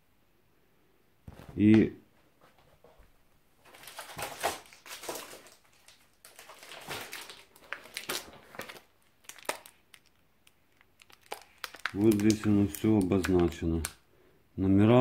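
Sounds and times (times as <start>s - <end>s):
paper rustling and crinkling: 3.6s - 13.9s.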